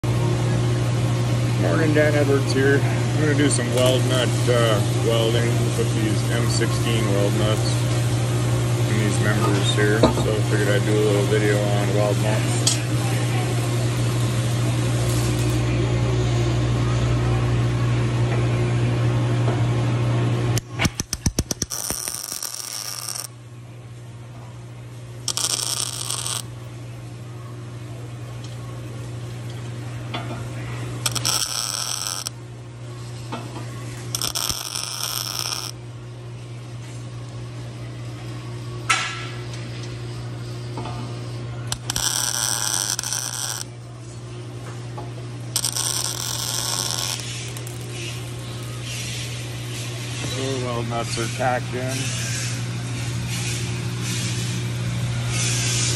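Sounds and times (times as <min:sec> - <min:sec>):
steady low hum: 0:00.0 - 0:55.9
welding arc bursts: 0:14.9 - 0:15.6, 0:20.6 - 0:23.3, 0:25.2 - 0:26.5, 0:31.0 - 0:32.4, 0:34.0 - 0:35.8, 0:41.7 - 0:43.8, 0:45.5 - 0:50.1.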